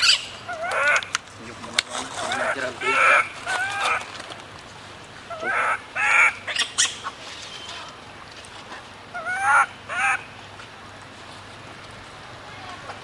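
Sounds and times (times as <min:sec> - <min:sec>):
baby monkey crying: 0:00.0 - 0:01.1, 0:02.3 - 0:04.1, 0:05.3 - 0:07.2, 0:09.2 - 0:10.2.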